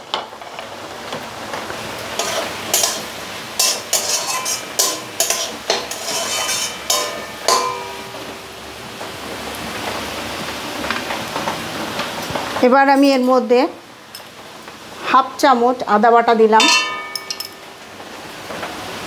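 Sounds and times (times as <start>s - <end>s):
spatula scraping a metal pan: 2.2s - 8.1s.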